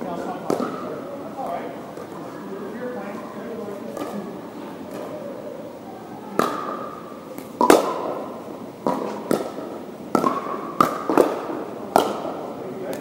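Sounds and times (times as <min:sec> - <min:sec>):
paddles striking plastic ball: 0:00.4 - 0:00.8, 0:07.4 - 0:08.2, 0:08.8 - 0:13.0.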